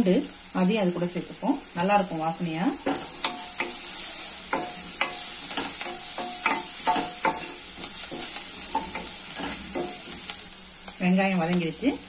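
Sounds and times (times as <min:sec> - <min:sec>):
onions sizzling in hot oil: 0:00.0 - 0:12.0
wooden spatula scraping pan: 0:02.9 - 0:10.4.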